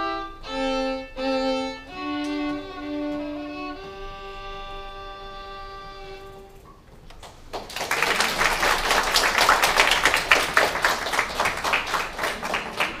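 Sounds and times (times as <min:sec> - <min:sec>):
held violin note: 0:00.0 - 0:06.7
audience clapping: 0:07.1 - 0:13.0.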